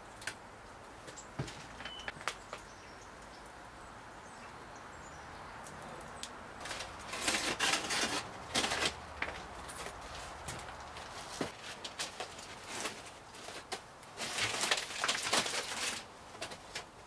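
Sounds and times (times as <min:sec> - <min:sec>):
faint outdoor background: 0:00.0 - 0:17.0
roasting pan scraping and rustling: 0:06.6 - 0:16.9.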